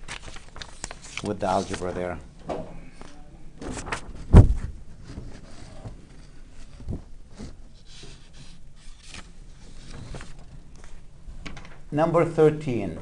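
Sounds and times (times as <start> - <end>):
paper rustling: 0.0 - 2.2, 2.9 - 11.0
heavy thump: 3.6 - 4.8.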